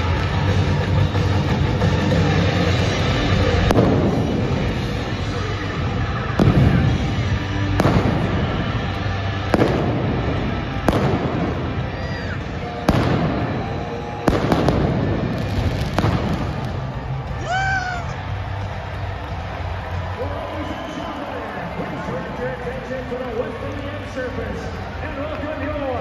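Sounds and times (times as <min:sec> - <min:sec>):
loud arena music: 0:00.0 - 0:26.0
pyrotechnic bangs: 0:03.5 - 0:05.3, 0:06.3 - 0:17.3.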